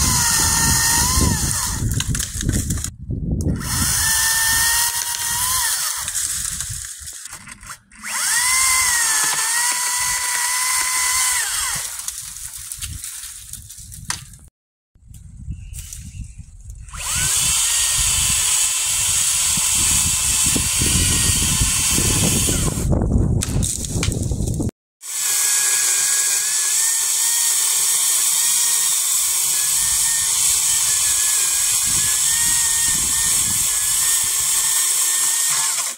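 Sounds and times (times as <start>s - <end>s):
electric chainsaw whining: 0.0s - 2.9s, 3.5s - 12.3s, 16.9s - 23.0s, 25.0s - 35.9s.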